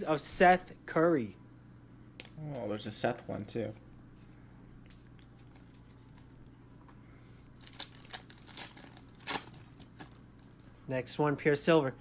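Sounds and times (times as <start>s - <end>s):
faint steady hum: 0.0s - 12.0s
card pack wrapper crinkling: 7.6s - 10.7s.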